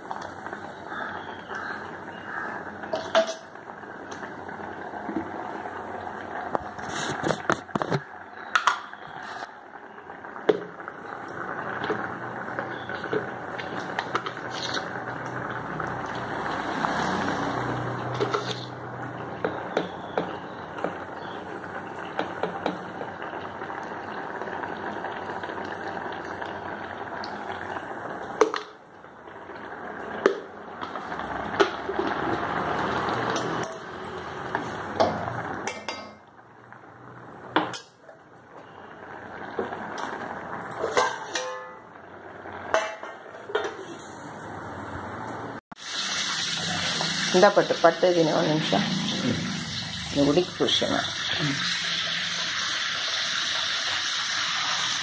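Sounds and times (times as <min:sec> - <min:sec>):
steel pots and lids clinking: 0:02.8 - 0:03.6, 0:12.6 - 0:16.2, 0:16.9 - 0:21.4, 0:30.2 - 0:36.3, 0:37.6 - 0:38.0, 0:40.7 - 0:41.9, 0:42.7 - 0:44.1.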